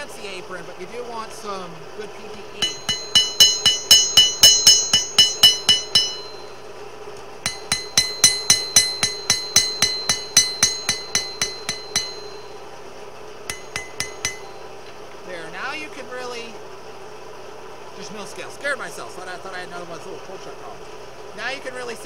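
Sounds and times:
hammer ringing on anvil: 2.6s - 6.7s, 7.4s - 12.7s, 13.5s - 14.8s.

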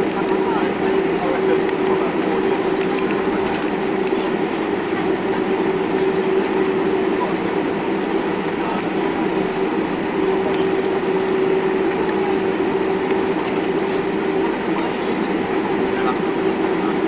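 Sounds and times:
jet engines heard in cabin: 0.0s - 17.0s.

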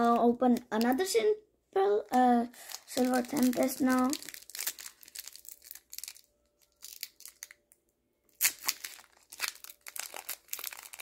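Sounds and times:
foil wrapper crinkling and tearing: 2.1s - 7.7s, 8.3s - 11.0s.

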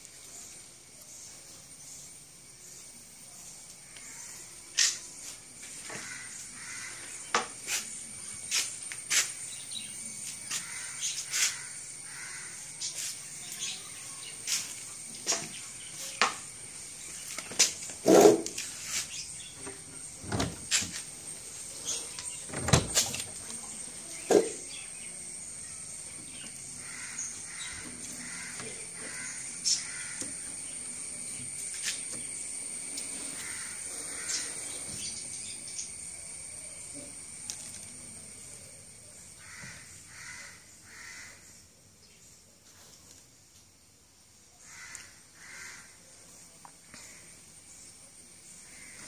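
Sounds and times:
crow-like bird caws: 5.8s - 7.2s, 10.5s - 12.7s, 26.8s - 30.4s, 33.4s - 34.6s, 39.4s - 41.5s, 44.6s - 46.0s, 48.6s - 49.0s
faint high hiss: 6.4s - 28.5s
wooden cabinet knocks and clunks: 20.2s - 20.7s, 22.5s - 23.0s.

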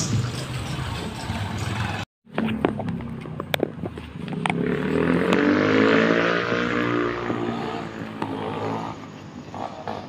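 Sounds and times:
vehicle passing close by: 4.5s - 10.0s.

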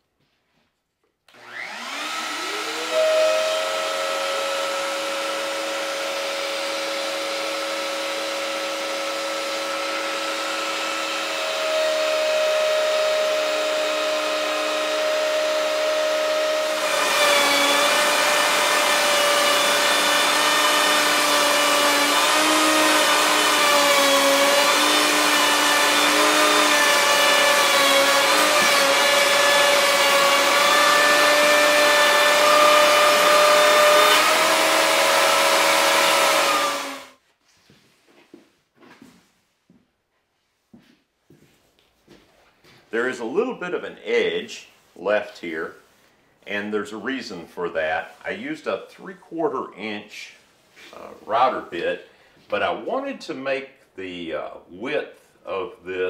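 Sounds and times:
router bit cutting wood: 1.3s - 37.2s
router running: 1.3s - 37.2s.

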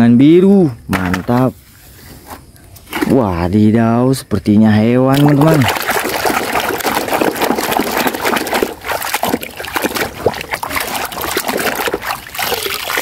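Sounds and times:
water sloshing in a plastic basin: 2.8s - 3.4s, 5.1s - 13.0s
wet squelches: 5.1s - 13.0s.

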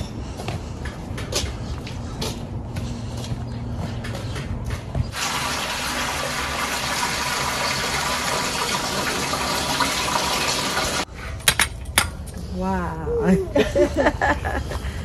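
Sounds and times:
tap water filling a pot: 5.2s - 11.0s.

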